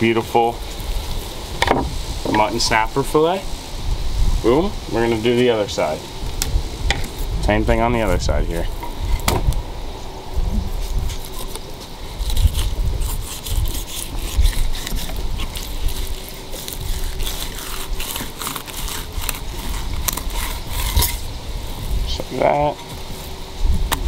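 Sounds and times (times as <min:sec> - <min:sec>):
knife sawing through fish skin: 0:10.8 - 0:21.3.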